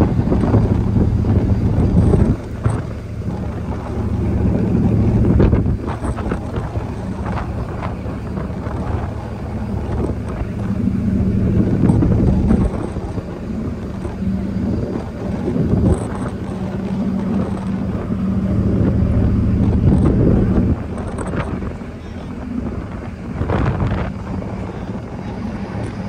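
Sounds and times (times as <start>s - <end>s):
ship engines droning: 0.0s - 26.0s
wind gusting across microphone: 0.0s - 26.0s.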